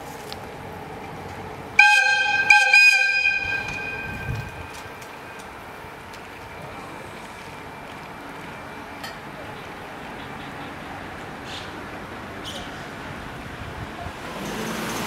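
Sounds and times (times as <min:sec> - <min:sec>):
locomotive air whistle blasts: 0:01.8 - 0:04.6.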